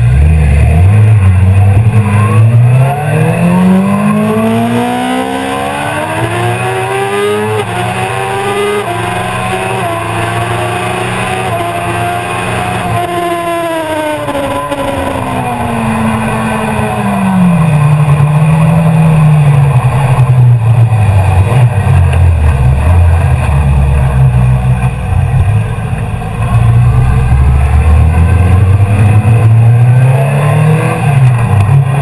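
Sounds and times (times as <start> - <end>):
motorcycle engine: 0.0 - 32.0.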